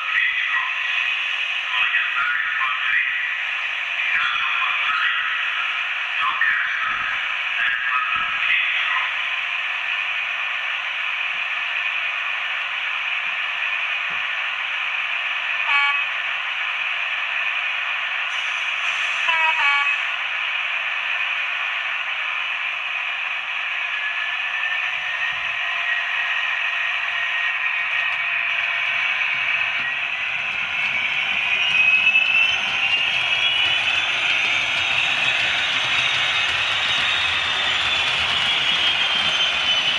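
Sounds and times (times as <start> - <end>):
model train diesel engine sound: 0.0 - 39.9
model train horn: 15.7 - 16.1, 19.3 - 20.1.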